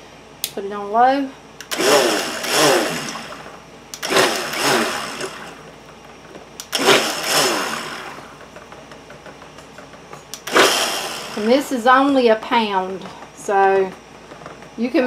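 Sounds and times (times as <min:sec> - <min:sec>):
stick blender whirring: 0:01.6 - 0:05.9, 0:06.6 - 0:08.5, 0:10.3 - 0:13.1.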